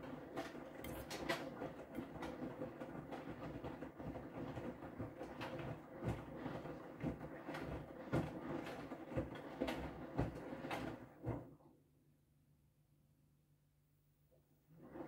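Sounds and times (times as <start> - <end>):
washing machine drum motor humming: 0.0 - 11.6
wet laundry sloshing and thumping: 0.0 - 11.6.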